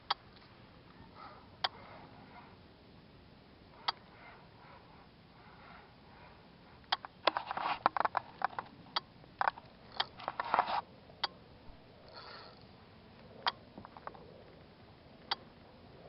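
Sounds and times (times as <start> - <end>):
small hard parts clicking and rattling: 6.9 - 10.8, 13.8 - 14.7.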